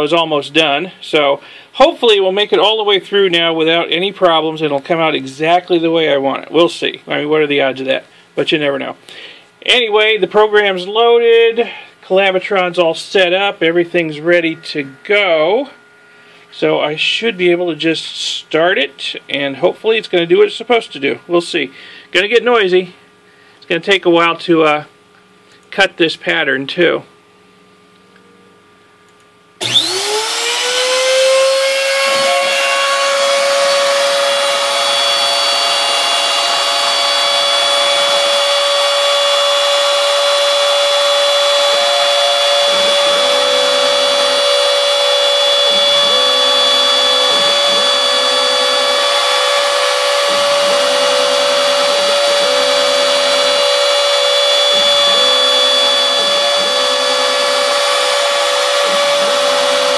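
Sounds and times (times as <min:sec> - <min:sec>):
low machine hum: 0:00.0 - 0:59.9
router whining: 0:13.3 - 0:21.4, 0:29.6 - 0:59.9.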